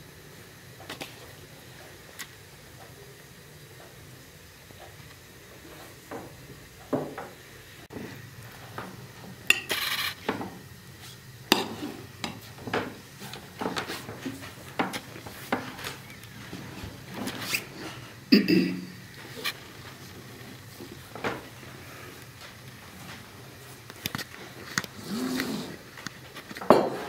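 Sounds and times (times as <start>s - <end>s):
cutlery clinking on plates: 9.5s - 10.3s.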